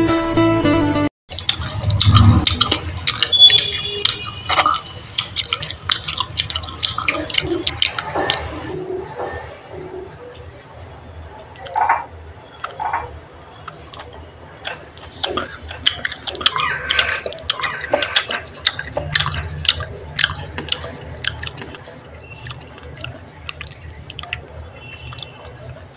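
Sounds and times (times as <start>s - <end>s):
fingers squishing moist fruit: 1.3s - 8.5s, 12.6s - 25.8s.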